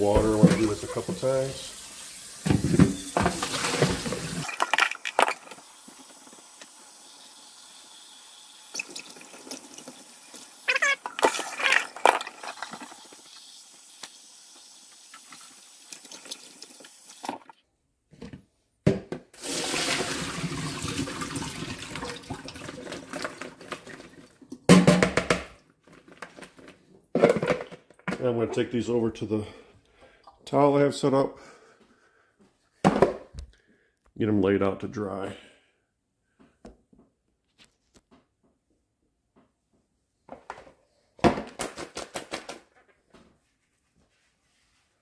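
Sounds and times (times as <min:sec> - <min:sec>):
bowl clattering: 0:02.4 - 0:05.6, 0:10.8 - 0:13.2
faucet water splashing into bowl: 0:12.6 - 0:17.5, 0:19.4 - 0:24.1.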